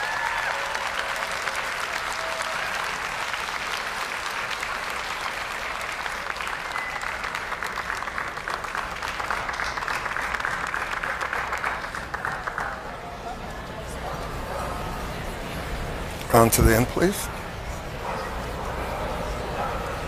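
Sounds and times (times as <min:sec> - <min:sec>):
audience applauding: 0:00.0 - 0:13.3.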